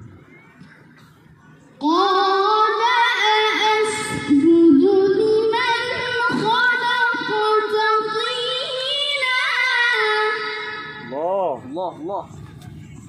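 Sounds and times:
boy reciting in melodic chant: 0:01.8 - 0:11.5.

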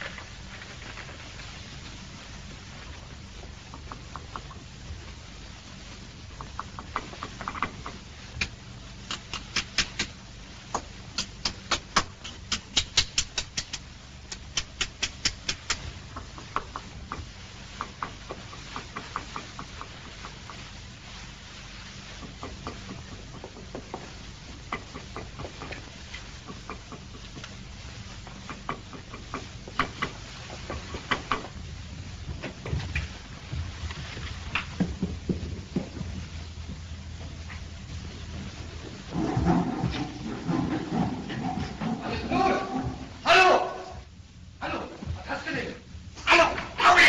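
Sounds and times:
faint low hum: 0:00.0 - 0:47.0
small hand tool tapping and clicking: 0:10.8 - 0:19.9.

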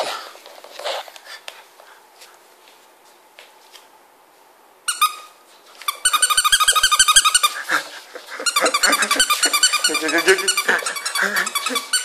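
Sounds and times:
squeaky toy squeaking: 0:04.9 - 0:07.6, 0:08.4 - 0:12.0.

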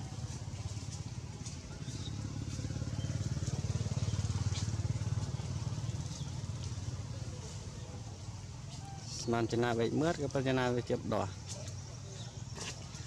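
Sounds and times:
fast-pulsing engine rumble: 0:00.0 - 0:08.7.

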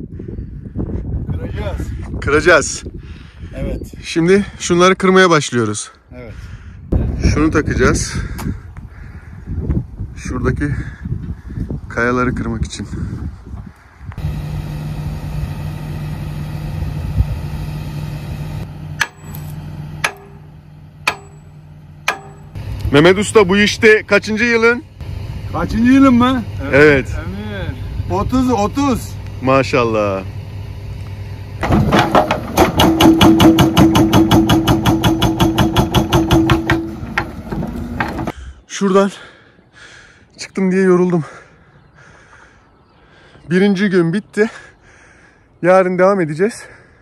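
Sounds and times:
steady machine hum: 0:14.2 - 0:31.8
excavator diesel engine running: 0:14.2 - 0:38.4
hydraulic breaker hammering rock: 0:19.0 - 0:19.4, 0:20.0 - 0:22.6, 0:31.6 - 0:38.3
sharp ringing knocks: 0:19.0 - 0:22.6, 0:31.6 - 0:38.3.

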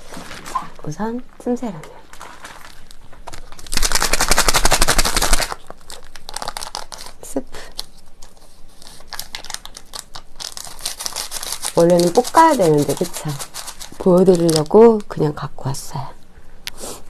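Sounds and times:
plastic sachet crinkling: 0:01.8 - 0:15.3
powder pouring: 0:02.1 - 0:06.9
plastic sachet rattling: 0:02.1 - 0:15.2.

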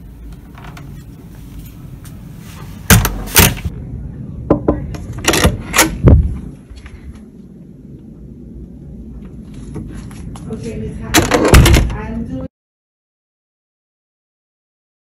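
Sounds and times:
wooden door thuds and clunks: 0:02.9 - 0:03.6, 0:11.2 - 0:12.0.

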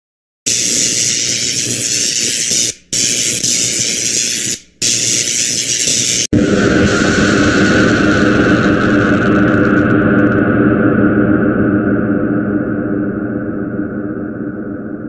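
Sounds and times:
harsh static hissing: 0:00.5 - 0:10.4
loud noise with steady hum: 0:00.5 - 0:15.0.

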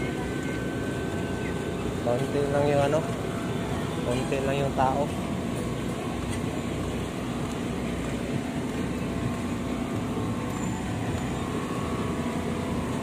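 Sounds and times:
outdoor market background hum: 0:00.0 - 0:13.0.

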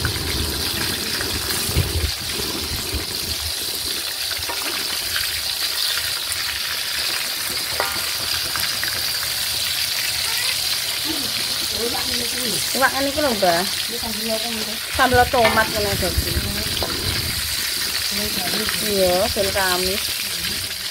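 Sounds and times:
fish sizzling in hot oil: 0:00.0 - 0:20.9
metal spatula scraping a pan: 0:15.0 - 0:19.8.

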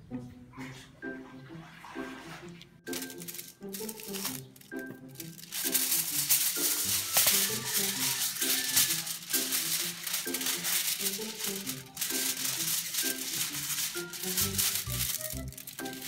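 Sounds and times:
shaker rattle: 0:02.9 - 0:16.0.

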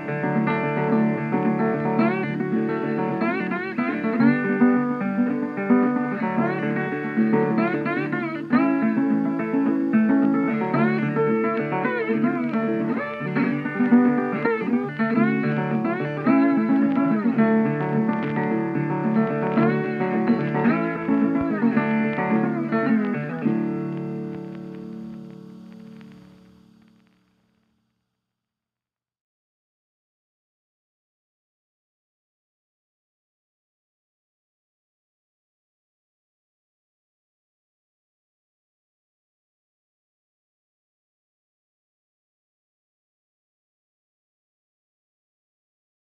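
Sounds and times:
guitar music with bending notes: 0:00.0 - 0:27.2.

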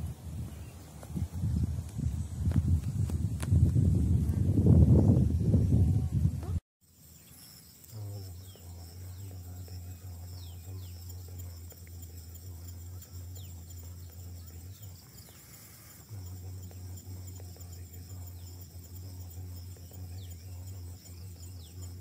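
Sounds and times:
insects shrilling: 0:06.8 - 0:22.0
low steady hum: 0:07.9 - 0:22.0.

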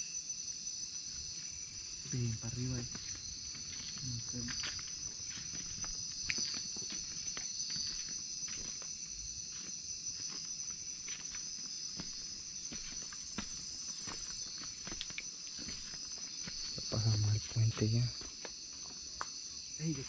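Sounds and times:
night insects chorus: 0:00.0 - 0:20.0
footsteps on wooden footbridge: 0:02.8 - 0:08.9, 0:09.5 - 0:19.0.

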